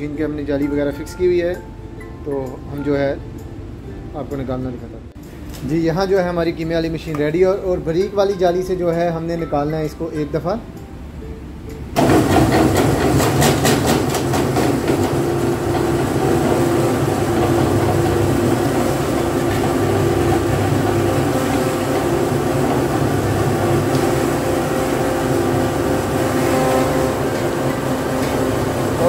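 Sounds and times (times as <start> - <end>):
electric mincer motor droning: 14.7 - 29.0.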